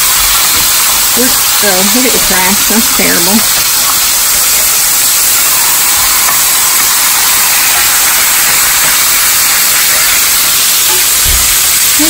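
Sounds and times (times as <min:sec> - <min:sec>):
steaks sizzling in skillet: 0:00.0 - 0:12.0.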